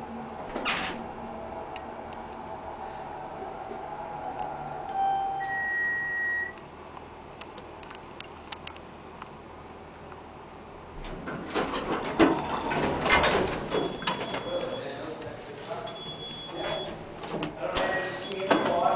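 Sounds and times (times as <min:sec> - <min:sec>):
elevator car humming: 0:00.0 - 0:07.9, 0:09.5 - 0:15.2
elevator doors sliding open: 0:00.4 - 0:01.6, 0:10.9 - 0:14.8, 0:16.0 - 0:18.9
elevator electronic chime: 0:04.9 - 0:06.6, 0:13.8 - 0:15.0, 0:15.9 - 0:17.0.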